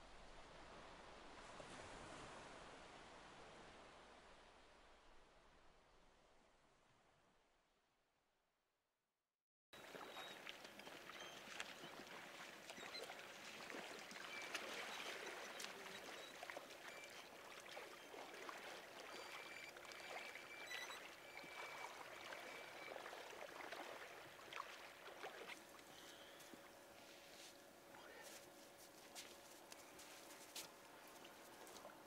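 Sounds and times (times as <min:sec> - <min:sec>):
water lapping at shoreline: 0:09.8 - 0:32.0.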